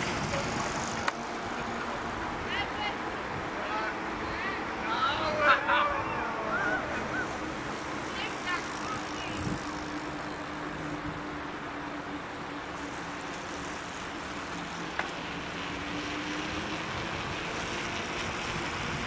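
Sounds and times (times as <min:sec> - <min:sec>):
bicycle tyres rolling on road: 0:00.0 - 0:19.0
wind while cycling: 0:00.0 - 0:19.0.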